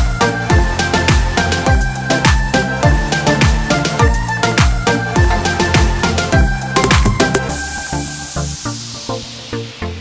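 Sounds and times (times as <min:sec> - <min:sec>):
deep kick drums: 0:00.0 - 0:07.4
electronic music beat: 0:00.0 - 0:10.0.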